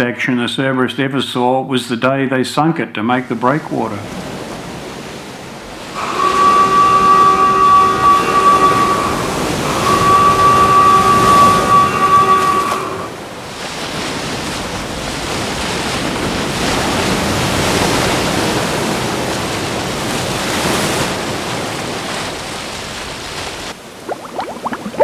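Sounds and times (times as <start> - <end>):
rough sea surf: 3.5 - 25.0
steady whistle tone: 6.0 - 13.1, 24.1 - 25.0.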